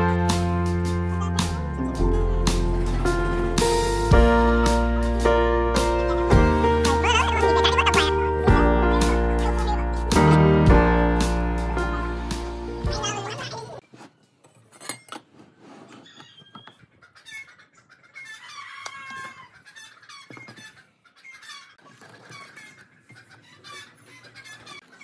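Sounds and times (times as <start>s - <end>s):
background music: 0.0s - 13.8s
chickens clucking: 1.1s - 4.8s, 5.6s - 10.4s, 12.6s - 13.8s, 16.6s - 25.0s.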